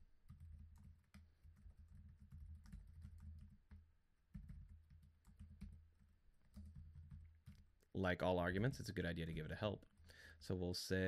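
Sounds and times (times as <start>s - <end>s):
typing on computer keyboard: 0.2s - 7.9s.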